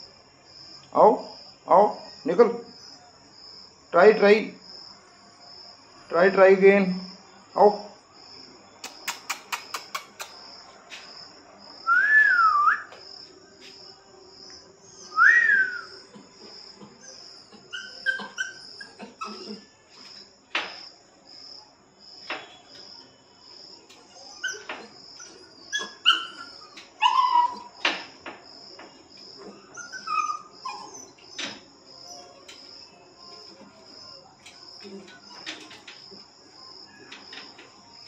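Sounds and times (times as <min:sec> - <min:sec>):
insect chirping: 0:00.0 - 0:38.0
puppies whining and yelping: 0:17.0 - 0:19.8, 0:24.0 - 0:27.8, 0:29.4 - 0:32.3.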